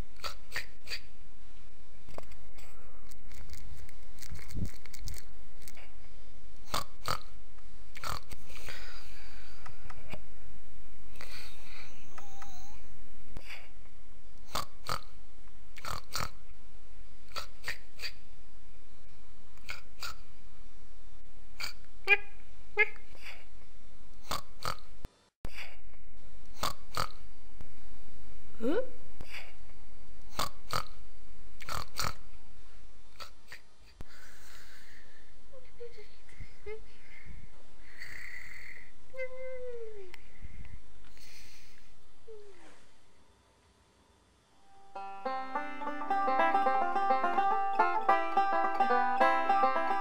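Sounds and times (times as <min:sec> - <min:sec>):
cartoon pig snorts: 0:00.2 - 0:01.1, 0:06.6 - 0:07.3, 0:08.0 - 0:09.0, 0:14.5 - 0:15.1, 0:15.8 - 0:16.4, 0:17.3 - 0:18.2, 0:19.6 - 0:20.3, 0:21.6 - 0:21.8, 0:24.2 - 0:24.9, 0:26.6 - 0:27.2, 0:30.3 - 0:30.9, 0:31.6 - 0:32.2, 0:33.2 - 0:33.6
faint hiss: 0:25.1 - 0:45.9.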